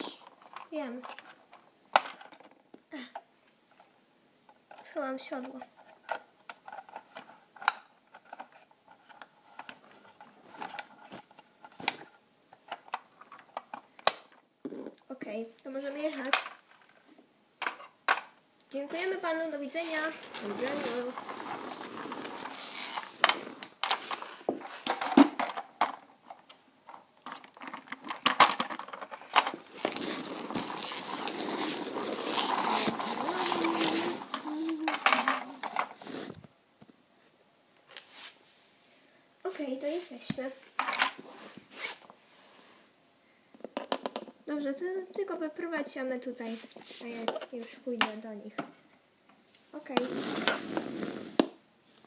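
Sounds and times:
soft rustling of handling: 0.0 - 14.0, 18.7 - 44.3, 45.9 - 50.1
steady rustling: 18.8 - 36.4.

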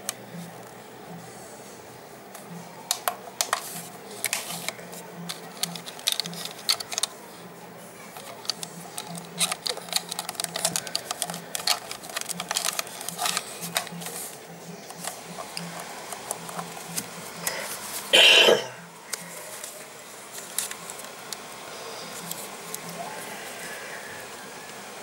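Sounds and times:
plastic clicks from handling transmitter: 4.2 - 7.2, 8.2 - 14.2.

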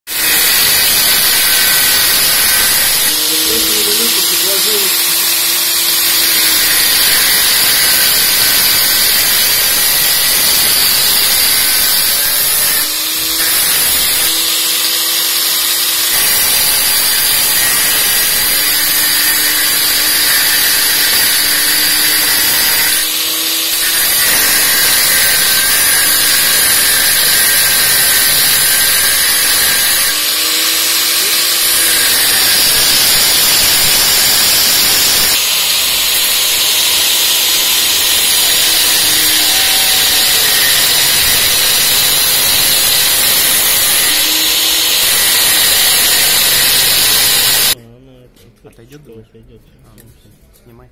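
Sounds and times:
angle grinder grinding metal: 0.1 - 47.8.

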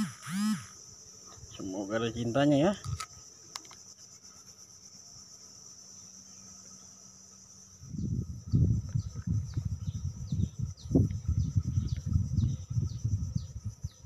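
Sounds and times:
insect buzz: 0.0 - 14.0
low rumble on the microphone: 7.7 - 14.0.

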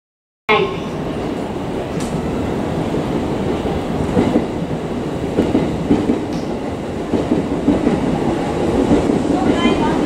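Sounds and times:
electric train rumbling: 0.5 - 10.0
train wheels knocking: 4.0 - 10.0.

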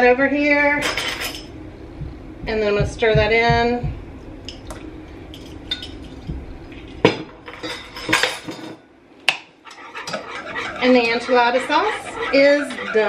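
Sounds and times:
kitchen utensils clinking: 0.8 - 1.5, 7.4 - 8.8, 9.7 - 13.0.

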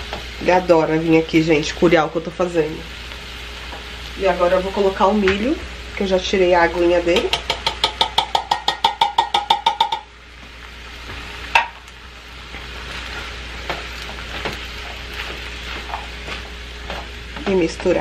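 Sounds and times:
food sizzling in a frying pan: 0.0 - 18.0
sharp knock on a pan: 7.1 - 10.1, 11.5 - 11.8
metallic taps on a can: 7.2 - 10.1
spatula stirring: 11.0 - 18.0.

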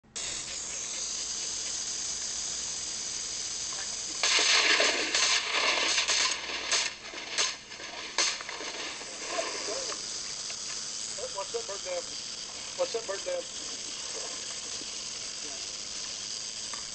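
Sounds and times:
steady hiss: 0.0 - 16.9
shotguns firing: 4.2 - 10.0.

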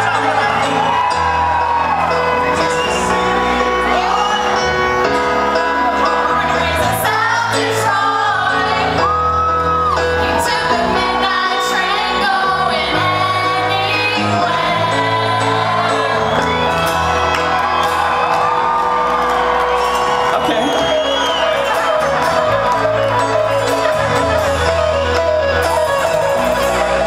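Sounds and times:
crowd shouting and whooping: 0.0 - 27.0
rock band playing: 0.0 - 27.0
woman singing into a microphone: 10.2 - 16.0.

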